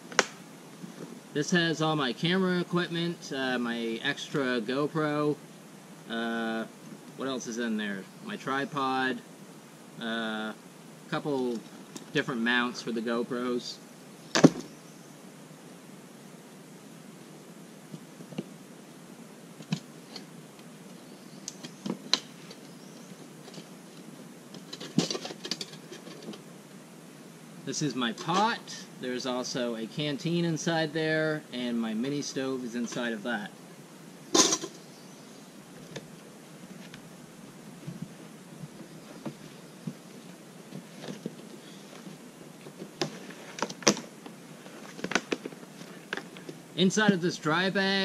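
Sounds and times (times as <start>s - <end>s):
camping gear clicks and knocks: 14.3s - 14.7s, 23.4s - 26.4s, 40.7s - 46.6s.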